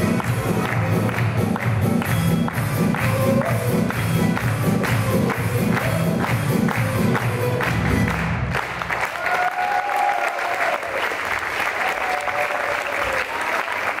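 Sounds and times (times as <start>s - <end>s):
folk dance accordion music: 0.0s - 8.8s
audience applauding: 0.0s - 14.0s.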